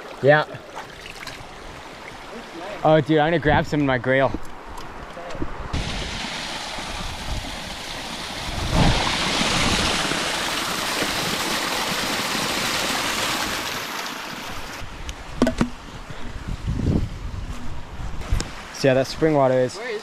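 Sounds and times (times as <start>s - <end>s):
water rushing and splashing: 0.0s - 3.4s, 5.7s - 15.4s, 18.1s - 20.0s.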